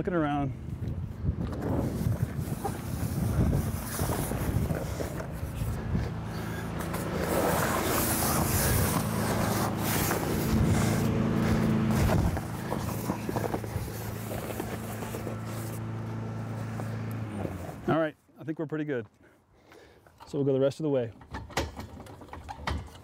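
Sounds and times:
vehicle engine running: 0.5 - 18.0.

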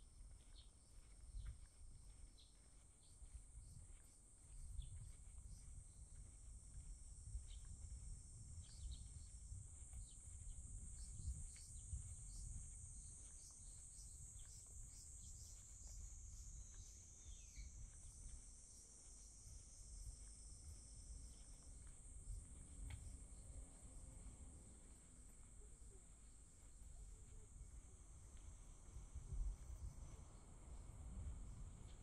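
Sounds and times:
insects buzzing: 2.4 - 32.0
bird chirps: 13.2 - 18.0.

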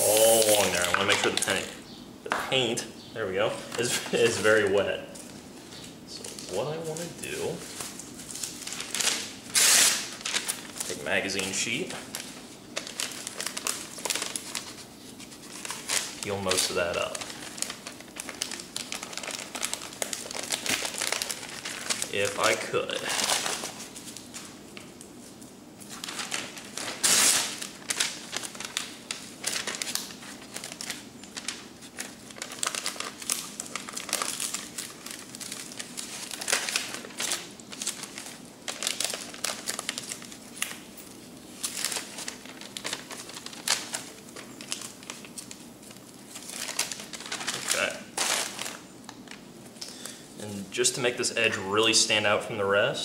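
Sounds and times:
paper crinkling and rustling: 0.0 - 1.6, 3.6 - 50.2.

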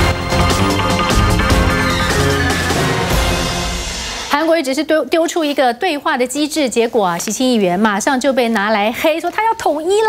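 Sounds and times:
music with steady beat and bass: 0.0 - 4.3.

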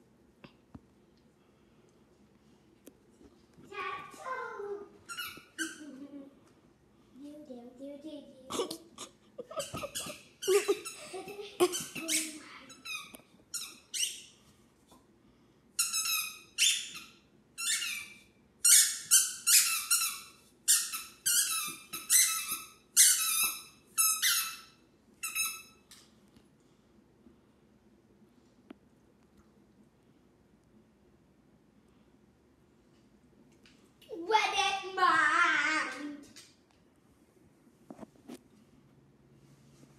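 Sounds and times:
squeaky toy squeaking: 5.1 - 5.9, 9.6 - 11.0, 11.6 - 14.3, 15.8 - 25.8.

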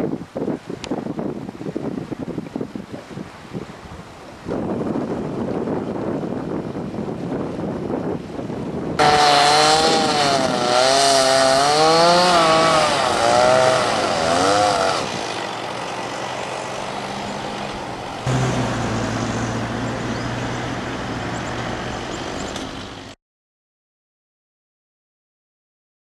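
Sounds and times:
chainsaw cutting wood: 9.0 - 19.8
low engine hum: 11.8 - 23.2.

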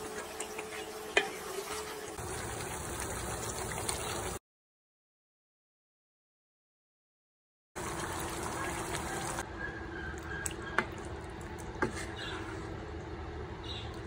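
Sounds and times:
curry bubbling in a pan: 0.2 - 4.4.

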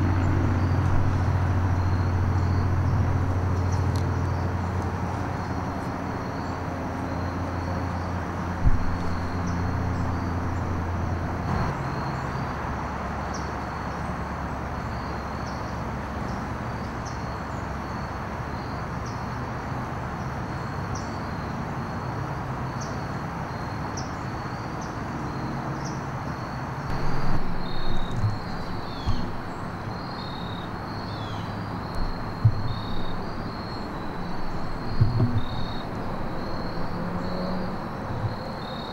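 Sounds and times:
insects chirping: 0.0 - 12.5, 20.5 - 38.9
knocks: 8.6 - 10.3, 26.9 - 30.6, 31.9 - 36.3.

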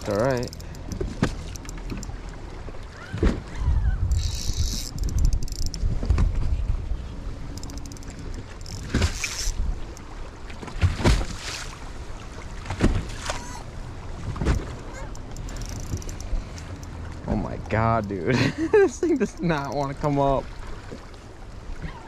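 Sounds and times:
water lapping against boat hull: 0.0 - 22.0
wind buffeting microphone: 3.1 - 9.9.

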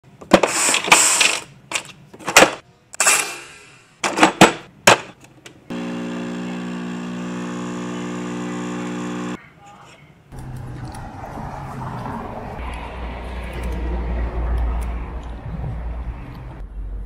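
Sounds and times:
espresso machine pump humming: 5.7 - 9.4.

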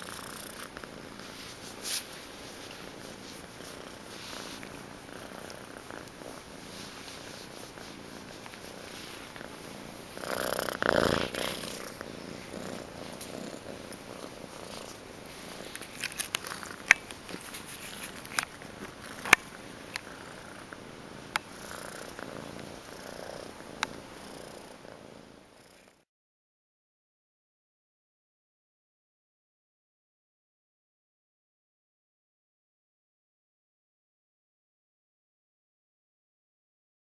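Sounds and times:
kitten purring: 0.0 - 26.0.

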